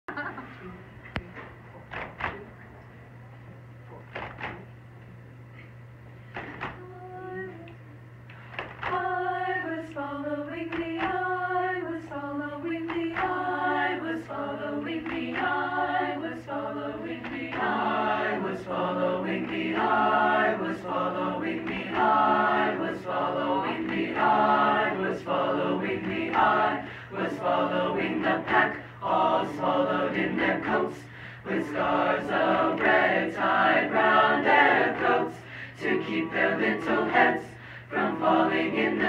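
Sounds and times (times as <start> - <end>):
steady low hum: 0.1 - 39.0
a cappella choir singing: 8.5 - 39.0.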